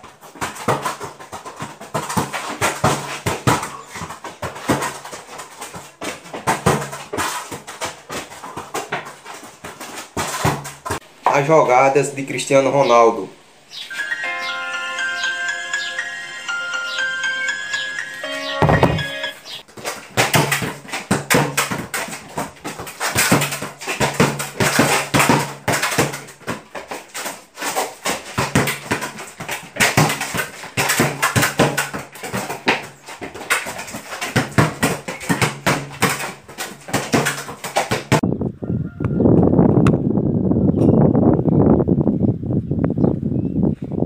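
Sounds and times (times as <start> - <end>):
football thumping on concrete: 0.0 - 11.4, 18.6 - 19.0, 19.6 - 38.3.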